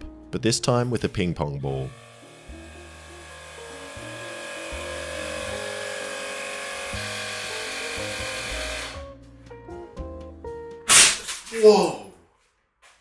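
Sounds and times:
electric air pump motor whine: 0.9s - 9.1s.

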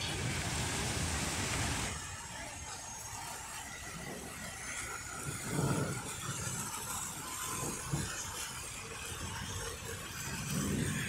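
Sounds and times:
low rumbles: 0.0s - 2.0s
fountain jets splashing: 0.0s - 11.0s.

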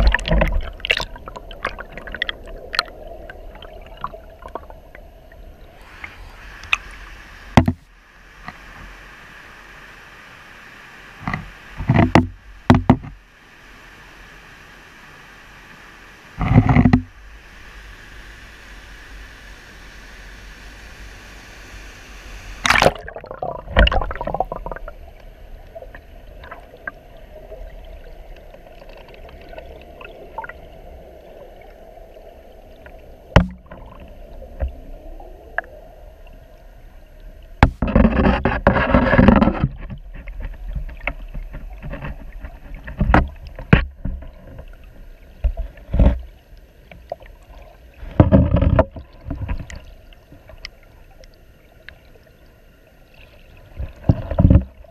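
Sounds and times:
underwater knocks and gurgles: 0.0s - 5.8s, 7.5s - 8.9s, 11.2s - 13.2s, 16.4s - 17.2s, 22.6s - 52.0s, 53.5s - 54.9s
underwater current rumble: 0.0s - 9.9s, 16.4s - 50.7s
river water rushing: 0.0s - 11.8s.

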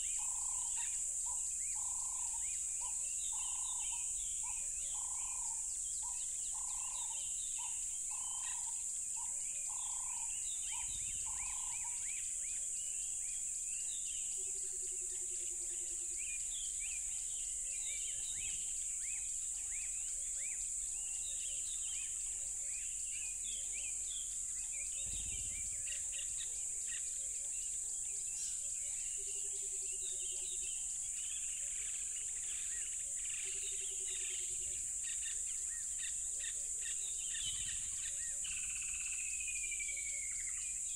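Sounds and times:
cricket chorus: 0.0s - 40.9s
birds chirping: 9.7s - 12.3s, 23.2s - 27.7s.

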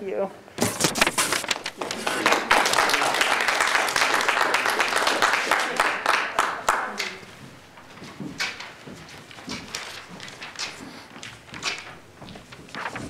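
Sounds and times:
small audience applauding: 1.5s - 7.3s.

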